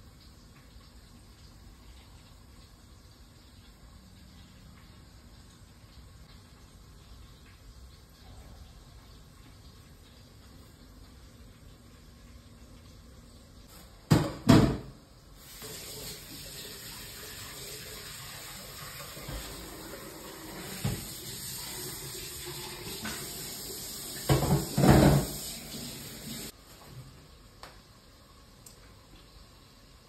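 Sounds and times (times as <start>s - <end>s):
tap running into sink: 19.0s - 19.9s, 20.5s - 21.4s, 24.1s - 26.4s.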